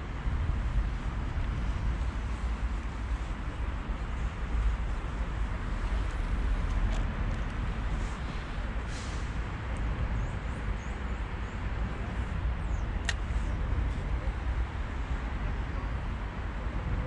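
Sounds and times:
low outdoor rumble: 0.0s - 17.0s
sharp click: 13.0s - 13.3s.

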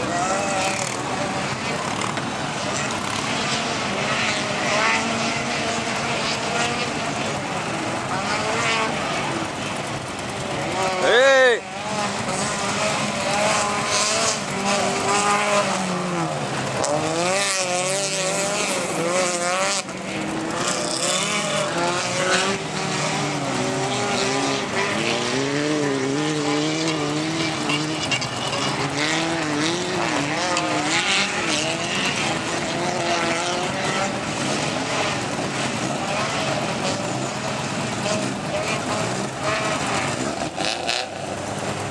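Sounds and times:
race car engines revving: 0.0s - 41.9s.

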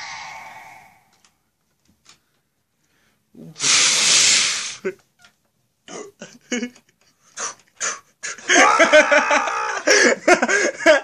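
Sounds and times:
breathy hiss from voice: 0.0s - 1.3s, 3.4s - 4.9s
short vocal sounds: 0.0s - 1.3s
wavering pitched cry: 0.0s - 1.3s.

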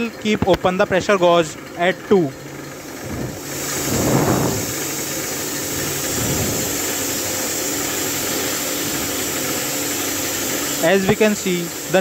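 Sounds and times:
air compressor running: 0.0s - 12.0s
compressed air hissing from valve: 2.8s - 12.0s.

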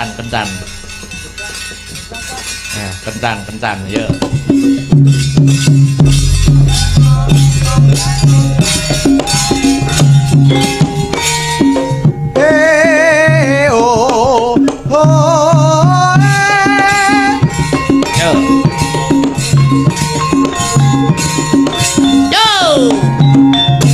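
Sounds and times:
high wavering melody: 0.0s - 13.0s
hand drum pattern: 0.0s - 23.9s
low bass notes: 4.5s - 11.4s.

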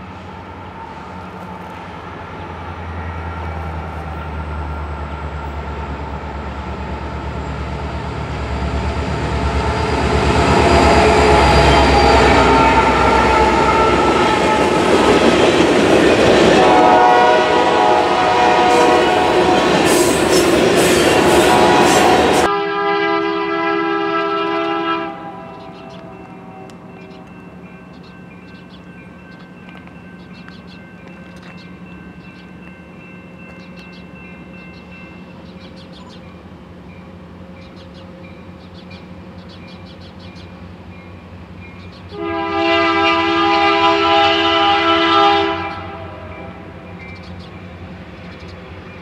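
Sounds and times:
diesel locomotives rumbling: 0.0s - 49.0s
second train horn blowing steadily: 2.9s - 27.6s, 42.0s - 47.2s
train horn: 9.0s - 27.4s, 42.1s - 46.8s.

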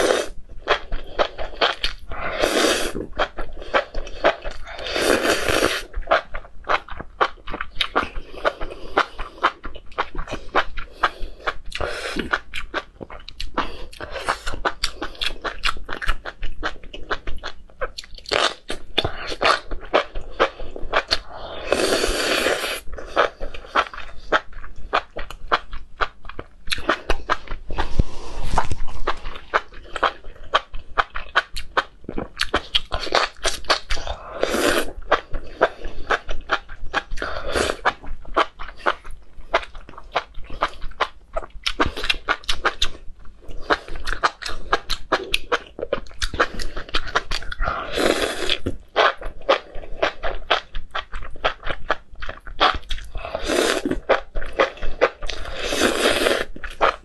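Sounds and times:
wet chewing and mouth smacks: 5.8s - 21.2s, 23.0s - 34.2s, 34.8s - 47.7s, 48.5s - 57.0s
slurping: 20.4s - 25.0s, 52.6s - 57.0s.

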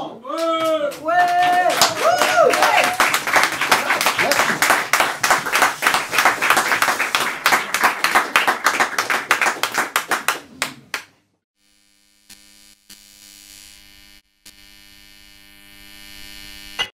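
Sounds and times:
audience applauding: 0.3s - 11.1s.

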